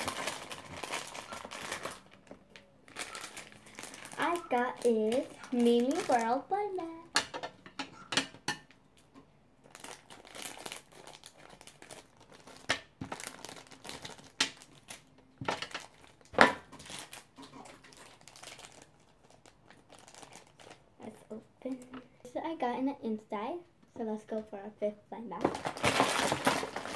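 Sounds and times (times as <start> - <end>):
plastic packaging crinkling: 0.0 - 7.0, 9.6 - 21.3, 25.4 - 26.9.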